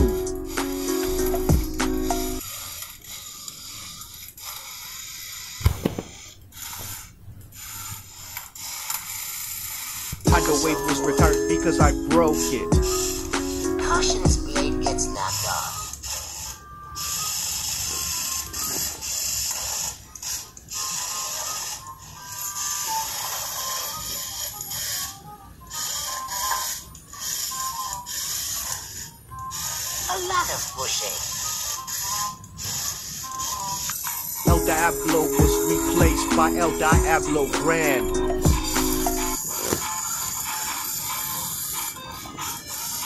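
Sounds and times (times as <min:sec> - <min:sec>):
toy robots rattling: 0:02.4 - 0:05.6, 0:06.2 - 0:10.2, 0:15.2 - 0:34.5.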